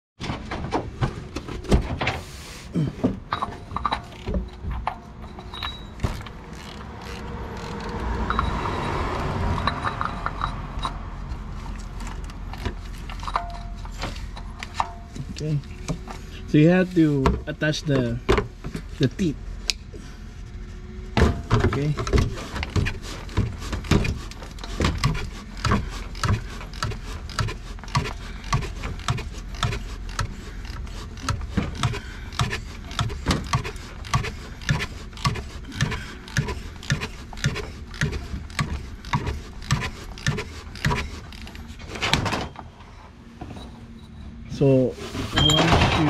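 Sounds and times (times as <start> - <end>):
ratchet clicking: 5.4 - 8.6, 24.2 - 41.7.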